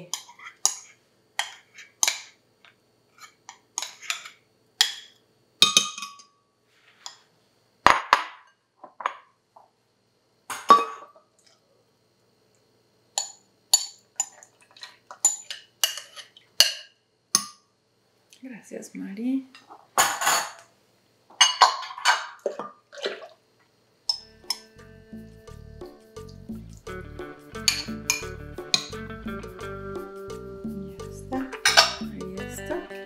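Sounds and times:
glass bowls clinking: 21.4 - 23.2, 24.1 - 24.7, 27.6 - 29.0, 31.4 - 32.2
milk pouring: 22.4 - 23.4.

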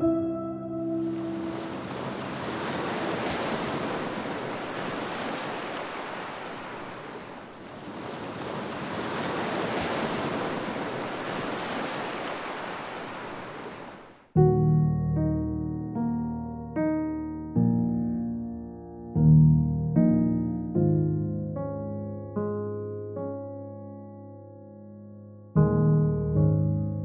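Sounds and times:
piano music: 0.0 - 4.3, 14.3 - 27.0
ocean surf rushing: 0.9 - 14.3.

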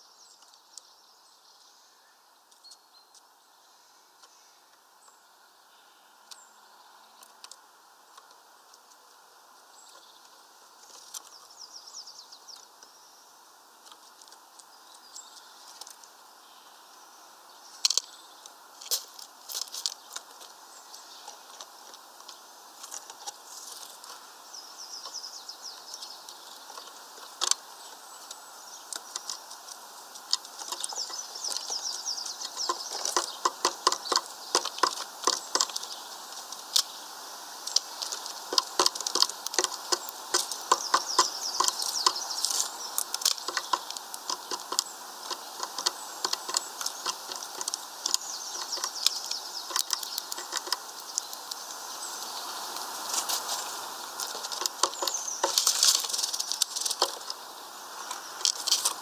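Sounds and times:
birds pecking seeds: 0.0 - 59.0
seed husks cracking: 17.8 - 20.6, 25.9 - 59.0.

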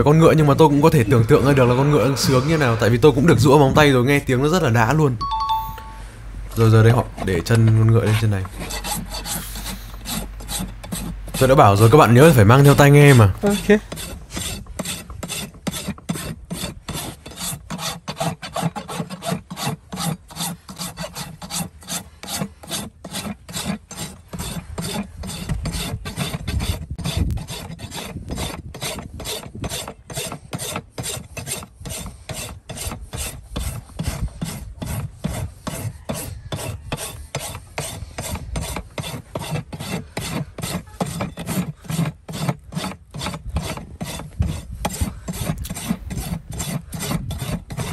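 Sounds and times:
hoof rasp scraping hoof: 0.0 - 47.9.

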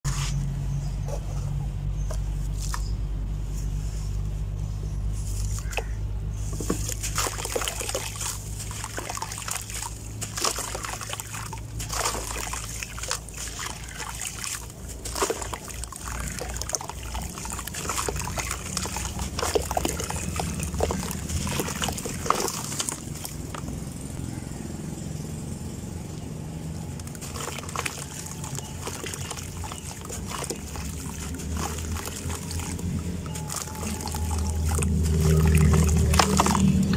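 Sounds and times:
dirt crunching and crackling: 0.1 - 24.4, 26.9 - 36.9
dirt splashing into water: 5.4 - 23.7, 27.0 - 36.9.

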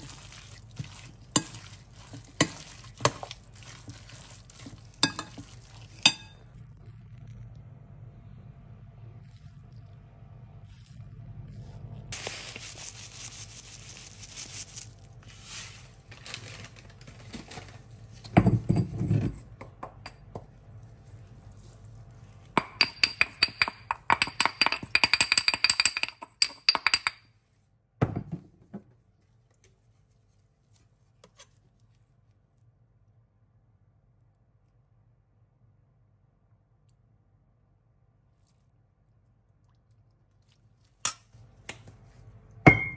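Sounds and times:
clinks and taps with ringing tone: 22.6 - 27.2, 42.7 - 42.9.

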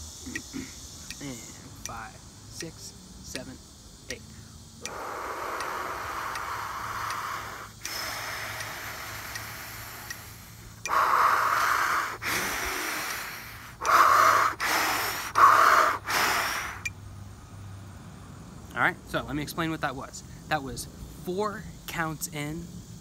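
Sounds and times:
man breathing forcefully: 4.2 - 16.9.

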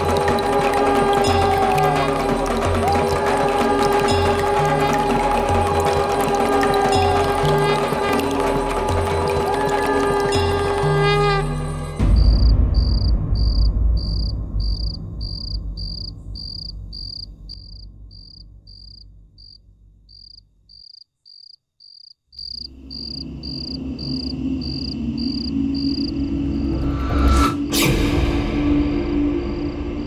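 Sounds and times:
cricket chirping: 12.2 - 27.4
low rumbling drone: 22.8 - 30.0.

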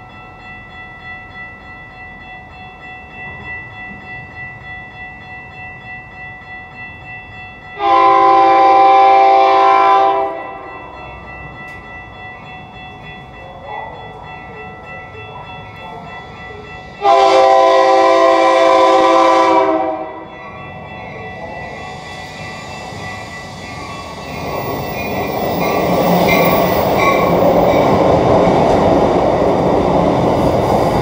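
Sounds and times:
train rumbling on tracks: 0.0 - 31.0
train air horn blasts: 7.8 - 10.7, 17.0 - 20.2.

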